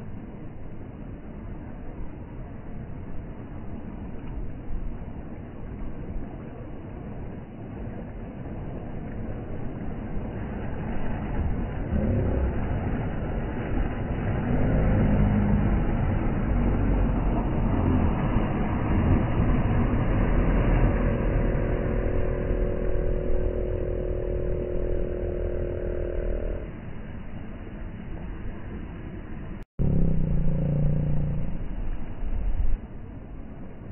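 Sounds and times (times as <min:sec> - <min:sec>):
surf washing on beach: 0:00.0 - 0:29.6, 0:30.5 - 0:33.9
steady engine tone: 0:05.1 - 0:33.9
outboard motors running: 0:08.2 - 0:28.8, 0:29.8 - 0:32.4.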